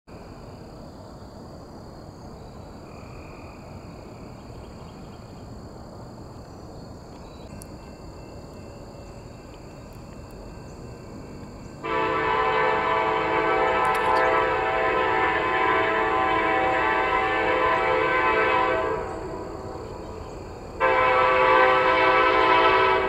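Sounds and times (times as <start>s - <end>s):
thin high steady whine: 6.4s - 23.0s
locomotive air horn chord: 11.8s - 20.2s, 20.8s - 23.0s.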